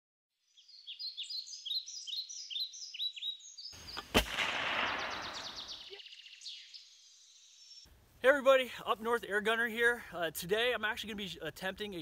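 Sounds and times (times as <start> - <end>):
songbirds chirping: 0.4 - 12.0
gunshot: 3.9 - 5.8.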